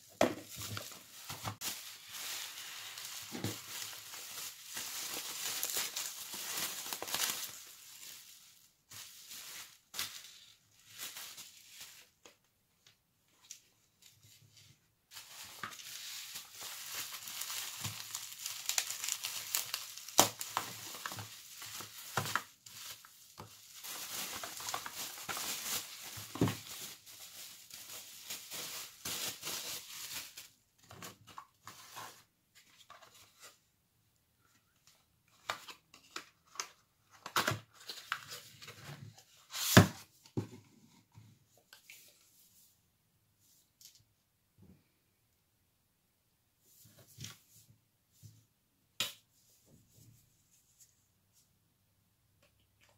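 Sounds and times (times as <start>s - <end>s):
bubble wrap crinkling: 0.0s - 12.3s, 15.1s - 30.6s.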